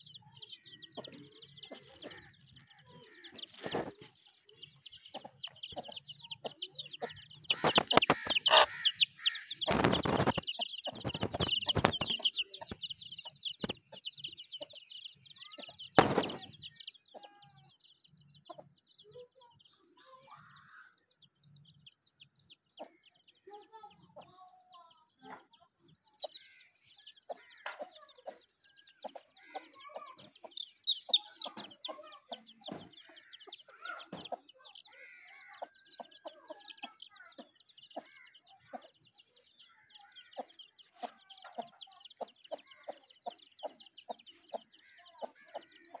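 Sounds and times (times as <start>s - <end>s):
chicks peeping: 0.0s - 19.7s, 21.1s - 46.0s
hen clucking: 0.8s - 14.8s, 27.2s - 39.4s, 40.0s - 46.0s.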